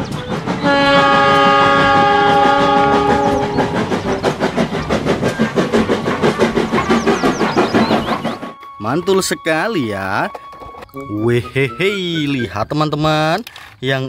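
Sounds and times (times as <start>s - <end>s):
steam locomotive chime whistle: 0.0s - 4.4s, 8.4s - 12.6s
locomotive exhaust chuffs: 0.0s - 12.9s.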